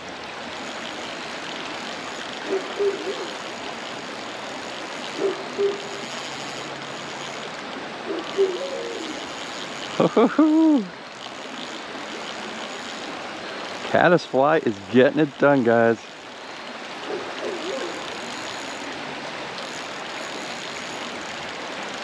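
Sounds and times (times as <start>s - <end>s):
creek water running: 0.0s - 22.0s
low hooting calls: 2.4s - 3.5s, 5.2s - 6.2s, 8.0s - 9.5s, 17.0s - 18.8s
call with falling pitch: 8.1s - 9.4s.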